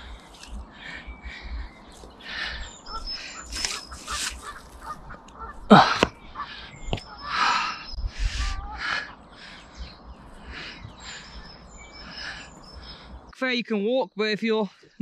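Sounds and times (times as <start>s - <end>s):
birds chirping faintly: 0.0s - 15.0s
hands scraping on stone: 3.5s - 4.8s.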